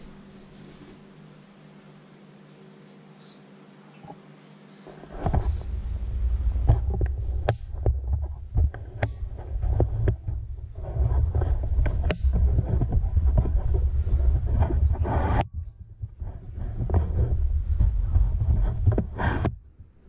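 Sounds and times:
camera handling rumble and knocks: 6.6 - 19.6.

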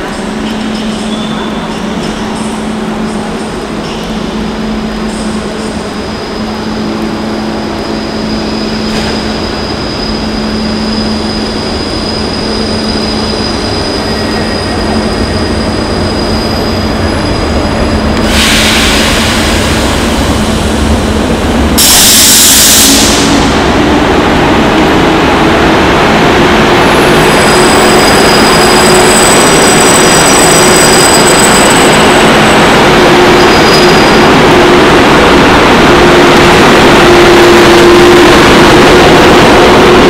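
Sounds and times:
electric locomotive hum and whine: 0.0 - 40.0
loud hissing bursts: 18.2 - 20.2.

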